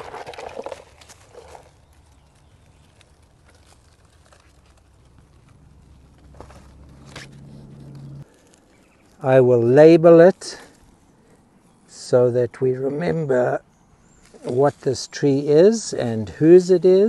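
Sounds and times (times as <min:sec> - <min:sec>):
faint rustling: 0:00.0 - 0:09.2
plastic pot crinkling: 0:00.0 - 0:09.2.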